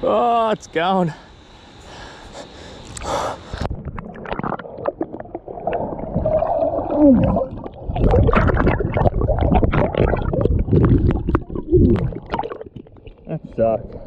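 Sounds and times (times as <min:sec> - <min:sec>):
water sloshing and splashing: 0:03.7 - 0:14.0
bubbly glugs: 0:03.8 - 0:14.0.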